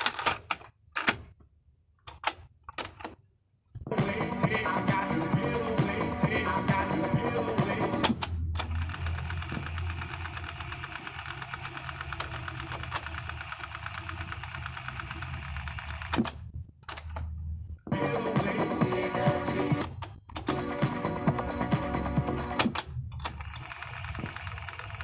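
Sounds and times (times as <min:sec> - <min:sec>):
music playing from boombox: 0:03.9 - 0:08.1, 0:17.9 - 0:22.6
mechanical whirring rattle: 0:08.1 - 0:17.3, 0:22.6 - 0:25.0.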